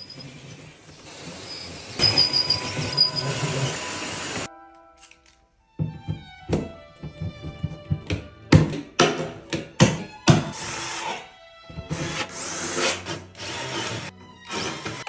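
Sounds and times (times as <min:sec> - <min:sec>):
background music: 0:04.4 - 0:15.0.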